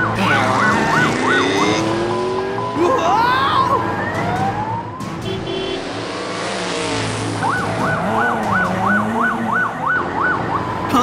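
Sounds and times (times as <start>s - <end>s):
toy police siren wailing: 0.0s - 4.6s
rushing vehicle noise: 0.0s - 11.0s.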